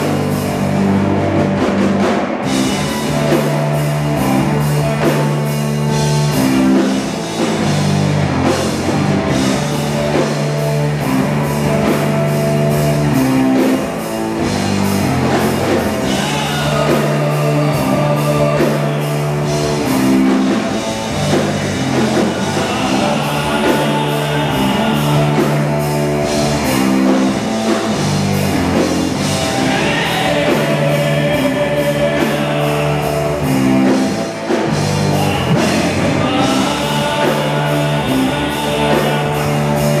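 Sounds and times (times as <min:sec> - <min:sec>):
live rock band playing: 0:00.0 - 0:40.0
repeating low bass notes: 0:00.0 - 0:40.0.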